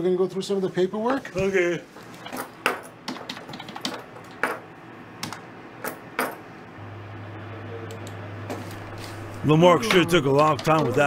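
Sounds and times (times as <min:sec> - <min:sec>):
calculator keys clicking: 0:03.1 - 0:04.0
steady low hum: 0:04.0 - 0:11.0.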